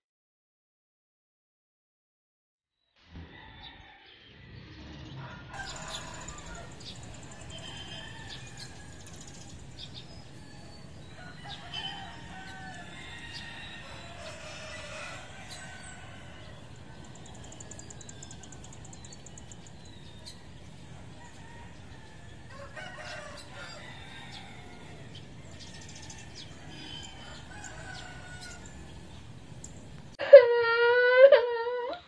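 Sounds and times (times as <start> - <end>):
roosters crowing: 3.1 - 32.0
child wailing: 30.2 - 32.0.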